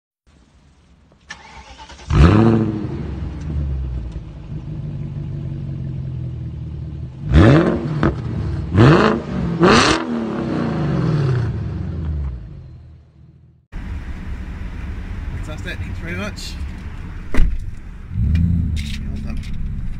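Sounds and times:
car engine revving and idling: 0:01.4 - 0:19.9.

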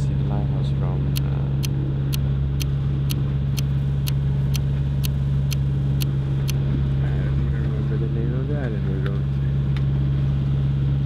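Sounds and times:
boat engine droning: 0:00.0 - 0:11.0
sharp ticks: 0:01.1 - 0:06.6.

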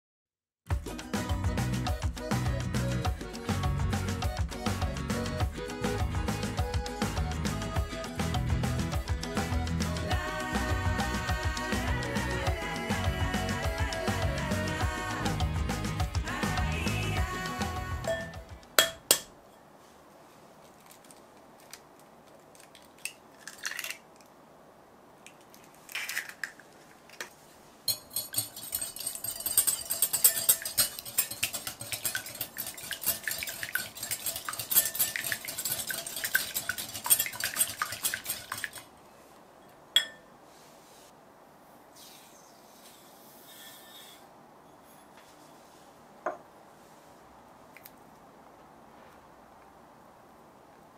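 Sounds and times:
whisk clinking against glass bowl: 0:18.0 - 0:19.2, 0:27.9 - 0:38.8, 0:40.0 - 0:40.2
sugar pouring into bowl: 0:27.9 - 0:38.8.

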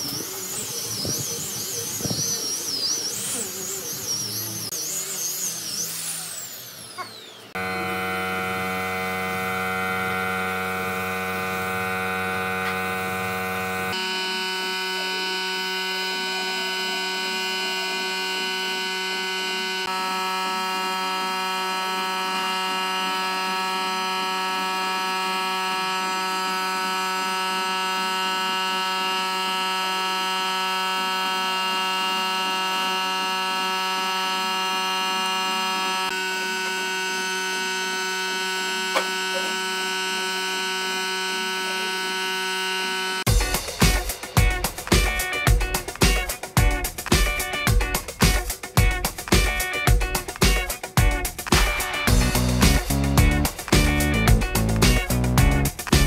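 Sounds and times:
electronic chord music: 0:43.2 - 0:56.0.

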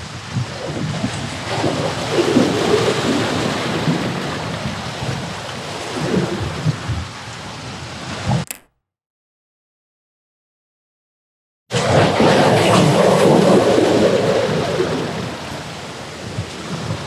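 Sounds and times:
wind buffeting microphone: 0:00.1 - 0:07.8.

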